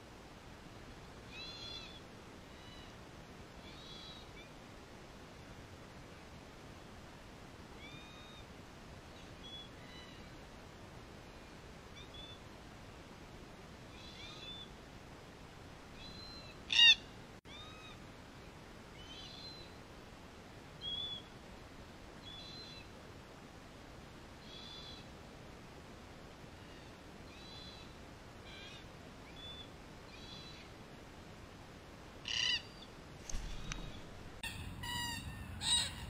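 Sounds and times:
cockatoo calling: 16.0s - 18.0s, 32.2s - 36.0s
distant birds chirping: 32.2s - 36.0s.

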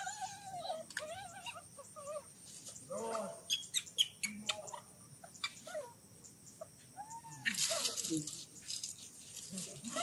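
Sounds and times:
baby monkey whimpering cries: 0.0s - 2.3s
sharp high chirps and clicks: 3.5s - 7.7s.

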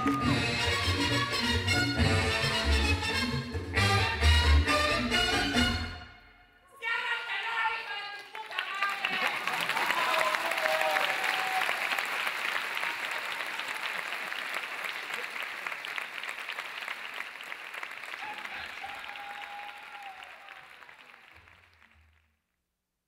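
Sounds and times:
audience applauding: 7.4s - 22.2s.

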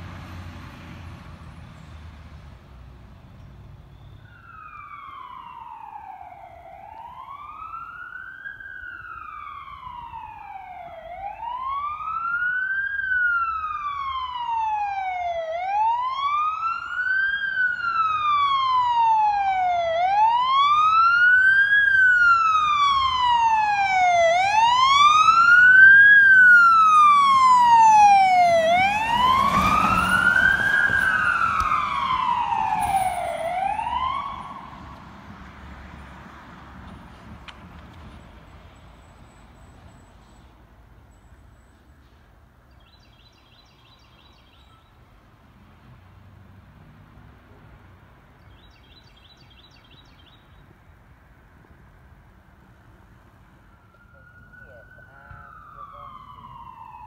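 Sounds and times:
fire truck siren wailing: 4.2s - 35.3s, 52.9s - 57.0s.

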